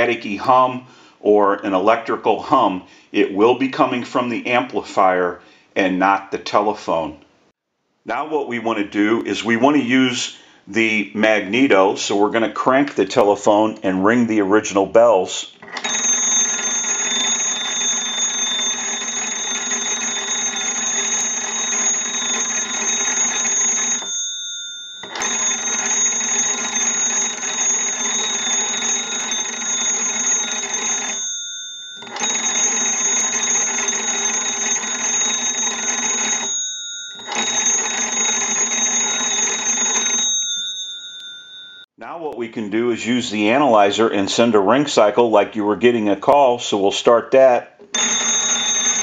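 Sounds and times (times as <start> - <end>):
telephone bells ringing: 15.6 - 42.0, 47.9 - 49.0.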